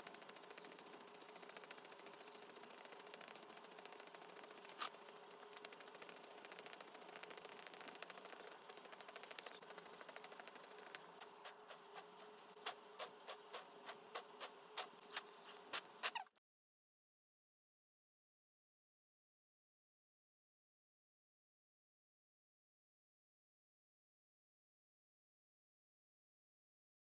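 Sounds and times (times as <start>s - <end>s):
dental scaler buzzing: 6.4s - 16.3s
water spray hissing: 11.2s - 16.3s.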